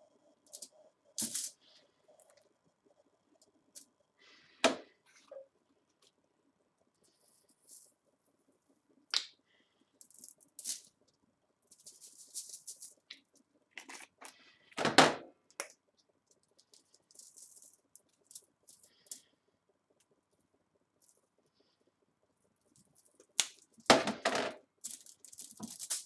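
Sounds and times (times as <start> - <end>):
shaker rattling: 0.5 - 1.7, 11.7 - 13.1, 16.3 - 19.2, 24.8 - 26.0.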